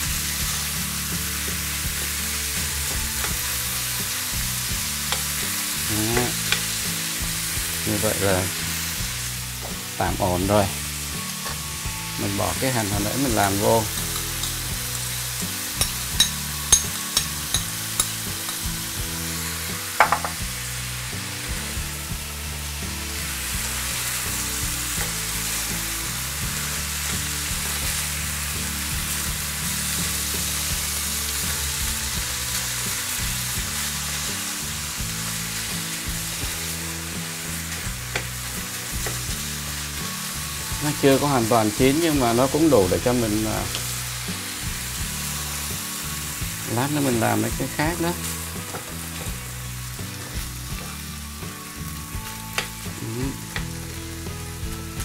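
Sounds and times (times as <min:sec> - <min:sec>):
meat and onion sizzling in pan: 0:00.0 - 0:55.0
knock: 0:20.0 - 0:20.4.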